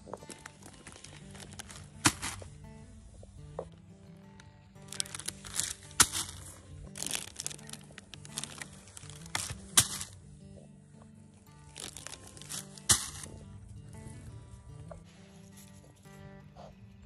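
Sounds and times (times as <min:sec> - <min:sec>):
plastic bags crinkling: 0:00.0 - 0:02.5, 0:04.8 - 0:10.2, 0:11.6 - 0:13.4
bag landing on mulch: 0:00.0 - 0:02.6, 0:04.8 - 0:10.2, 0:11.6 - 0:13.6
background music: 0:00.0 - 0:17.0.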